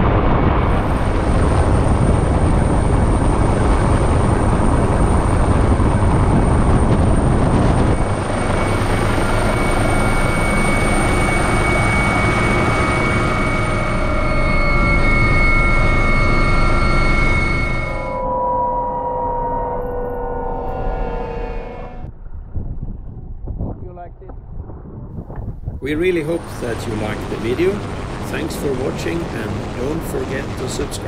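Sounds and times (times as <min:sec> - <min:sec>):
helicopter running: 0:00.0 - 0:18.7, 0:25.8 - 0:31.0
steady high tones: 0:07.6 - 0:22.1.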